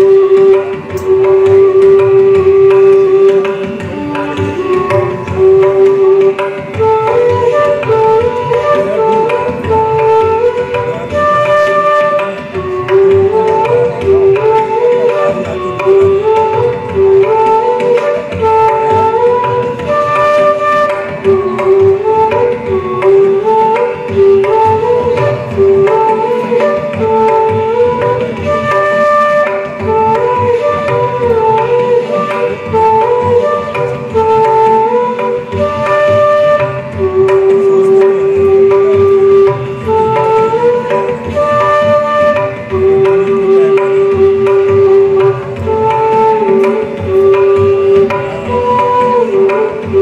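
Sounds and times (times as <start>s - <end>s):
bamboo flutes playing melody: 0.0s - 50.0s
tabla drumming: 0.0s - 50.0s.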